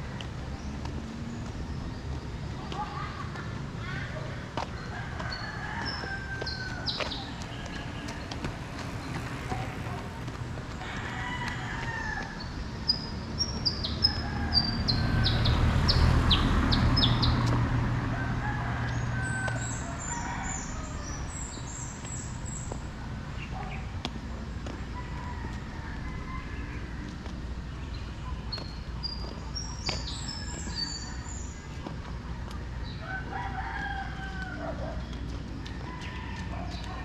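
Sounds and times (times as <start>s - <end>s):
small birds chirping: 0.0s - 10.9s, 11.5s - 17.6s, 18.9s - 25.3s, 26.6s - 33.2s
vehicle engine hum: 0.0s - 37.0s
roosters crowing: 4.8s - 21.8s, 24.8s - 27.5s, 32.8s - 37.0s.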